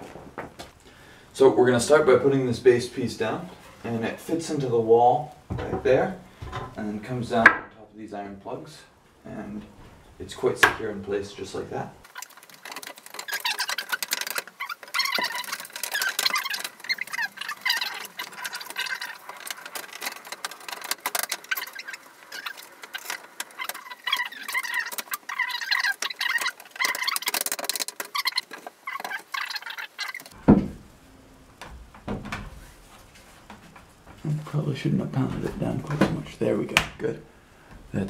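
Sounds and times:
clicks and knocks of wood: 5.5s - 6.8s, 12.1s - 30.9s, 31.6s - 34.3s
sped-up squeaky chatter: 13.1s - 30.3s
wooden rail pounded into place: 30.4s - 30.9s.

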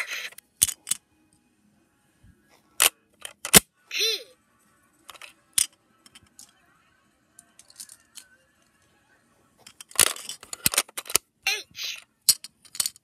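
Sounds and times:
toy pieces clicking: 0.0s - 1.0s, 5.1s - 6.5s, 7.6s - 8.3s, 9.7s - 13.0s.

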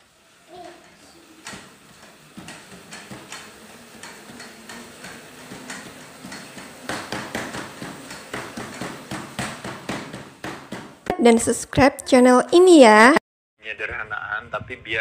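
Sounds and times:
footfalls on a treadmill: 0.5s - 11.2s.

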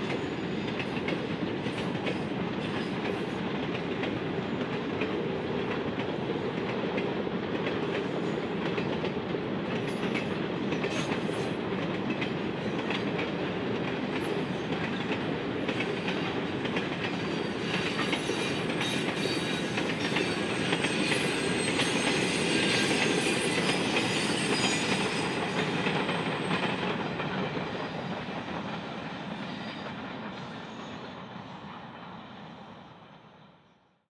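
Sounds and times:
train wagons rolling on rails: 0.0s - 32.2s.

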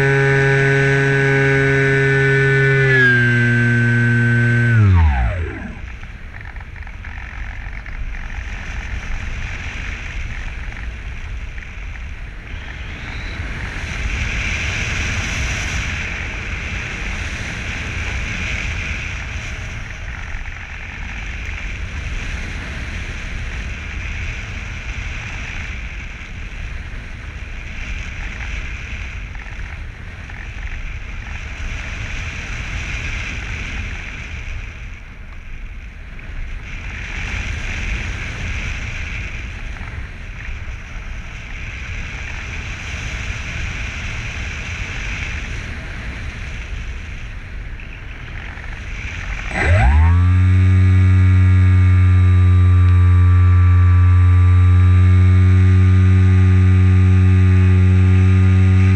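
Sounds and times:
wind buffeting rumble: 0.0s - 58.9s.

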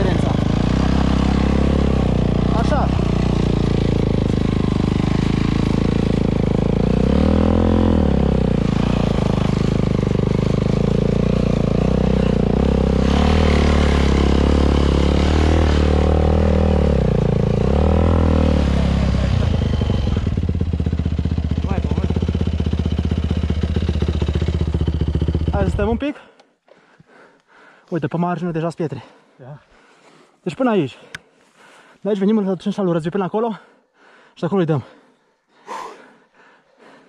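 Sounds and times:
dirt bike engine revving: 0.0s - 26.0s.

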